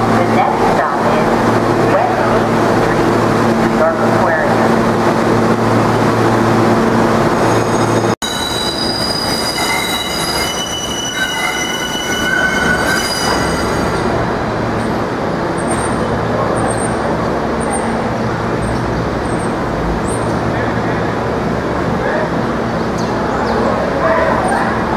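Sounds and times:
low train hum: 0:00.0 - 0:24.9
wheels rumbling on rail: 0:00.0 - 0:24.9
train wheels squealing: 0:07.4 - 0:14.0.

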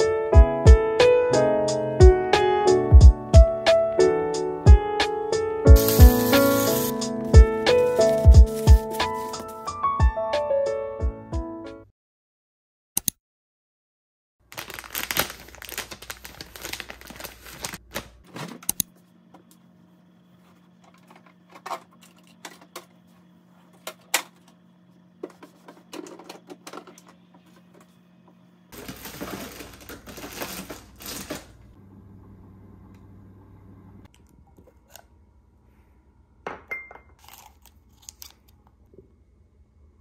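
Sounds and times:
rustling packages: 0:05.8 - 0:09.7, 0:14.4 - 0:18.7, 0:28.8 - 0:31.7
containers moved in refrigerator: 0:18.0 - 0:18.7, 0:20.6 - 0:23.0, 0:25.2 - 0:27.9, 0:28.8 - 0:31.6
steady low hum: 0:18.7 - 0:36.7.

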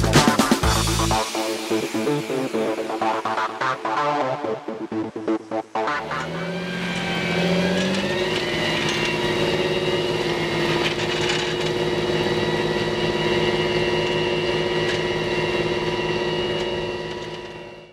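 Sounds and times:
tractor engine running: 0:05.9 - 0:17.9.

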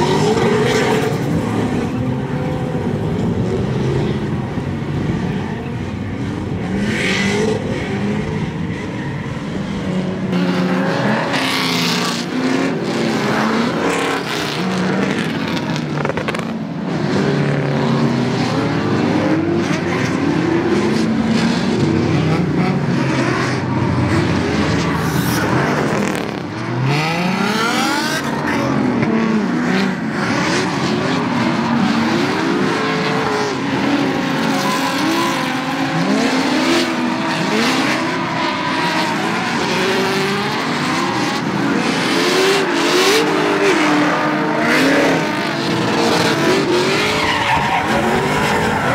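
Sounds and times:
car engines revving: 0:00.0 - 0:48.9
tyres squealing: 0:46.8 - 0:48.9.

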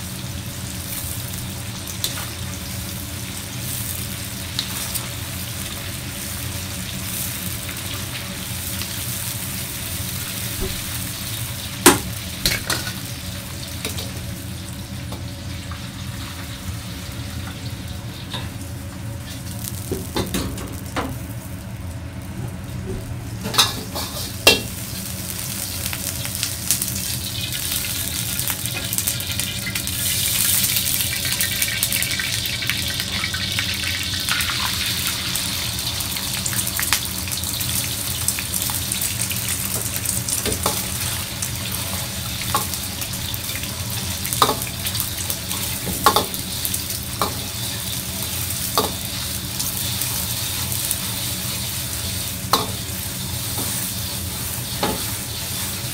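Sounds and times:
egg sizzling in hot oil: 0:00.0 - 0:22.4, 0:23.4 - 0:55.9.

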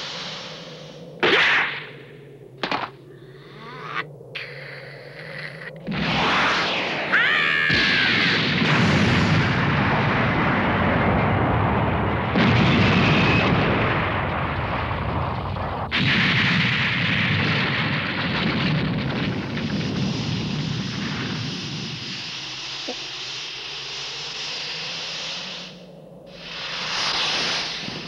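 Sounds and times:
explosion sound effects: 0:05.9 - 0:21.4.

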